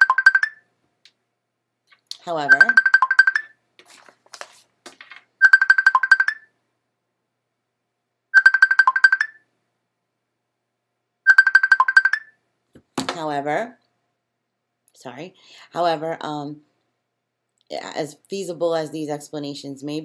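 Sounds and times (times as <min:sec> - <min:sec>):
telephone ringing electronic trill: 0:00.0 - 0:00.6, 0:02.4 - 0:03.6, 0:05.4 - 0:06.5, 0:08.4 - 0:09.4, 0:11.3 - 0:12.3.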